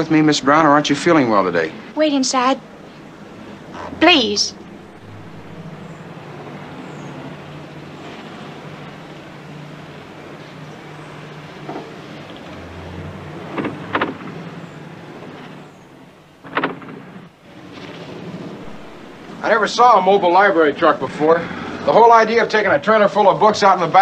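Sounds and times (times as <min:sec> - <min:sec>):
short pitched sounds: 0:02.6 - 0:08.0
motor vehicle running: 0:02.7 - 0:19.8.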